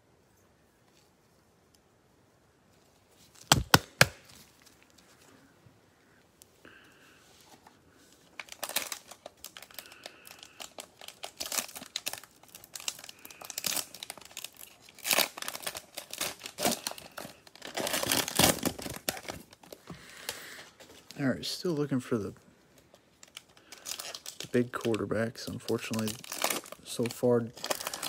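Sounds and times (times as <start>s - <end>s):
plastic wrapper crinkling: 7.6s - 21.8s, 22.8s - 28.0s.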